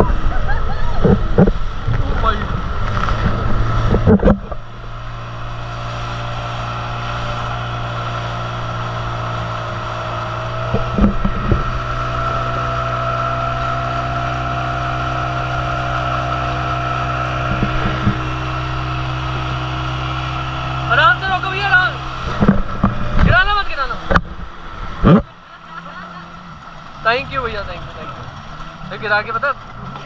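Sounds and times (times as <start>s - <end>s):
outboard motor running: 0.0s - 30.0s
rushing water: 0.0s - 30.0s
wind: 0.0s - 30.0s
short thumps: 22.2s - 25.3s.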